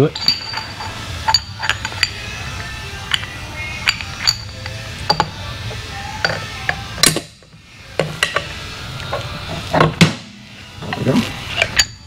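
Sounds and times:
sharp metallic clanks: 0.0 - 2.3
metal parts and tools clinking: 0.0 - 5.4, 6.1 - 10.0, 10.8 - 12.0.

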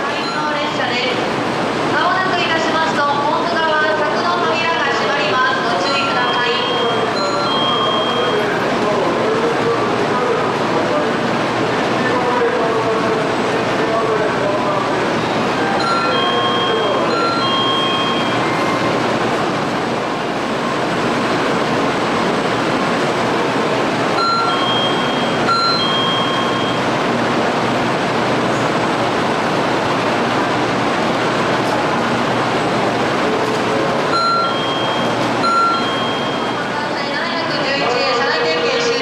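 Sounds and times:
loud rushing train noise: 0.0 - 39.0
electronic chime: 15.8 - 18.8, 24.2 - 26.9, 34.1 - 36.6.

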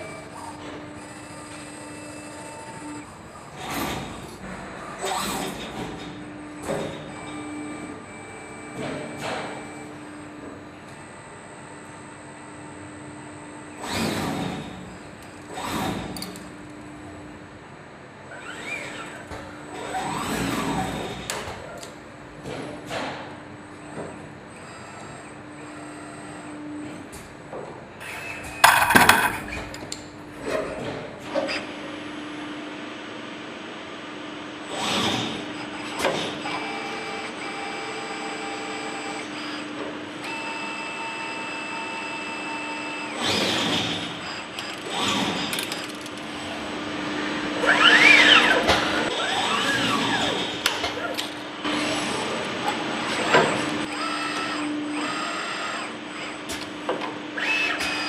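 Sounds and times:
steady machine hum: 0.0 - 22.4, 45.4 - 57.8
servo drives whining: 47.6 - 58.0.

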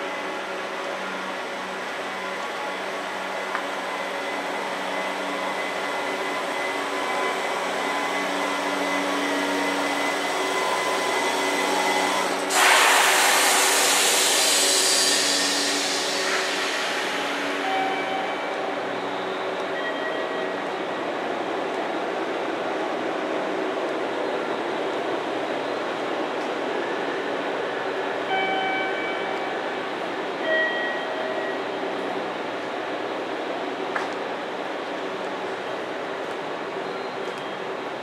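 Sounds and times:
train equipment humming: 0.0 - 38.0
compressed air hiss: 12.5 - 17.4.

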